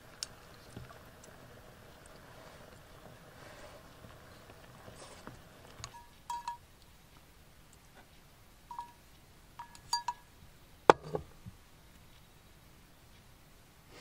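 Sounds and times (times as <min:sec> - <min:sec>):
metal spoon clinking on steel cup: 0:05.8 - 0:06.6, 0:08.7 - 0:09.0, 0:09.6 - 0:10.3
cup knocking on wooden shelf: 0:10.9 - 0:11.3.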